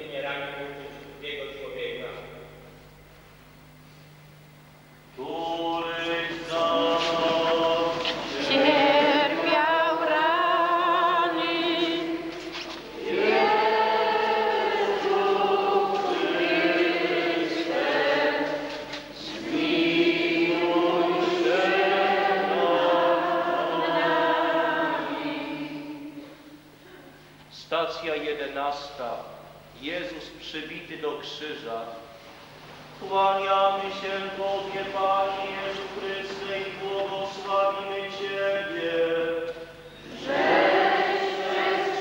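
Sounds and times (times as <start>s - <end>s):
group singing a hymn: 5.2s - 26.6s, 33.0s - 42.0s.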